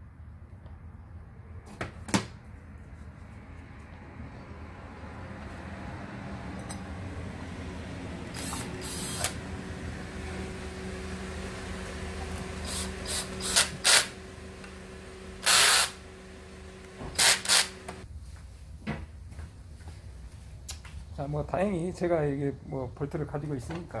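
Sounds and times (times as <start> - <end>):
steady low hum: 3.4 - 18.1
cordless driver running bolts: 8.2 - 18.0.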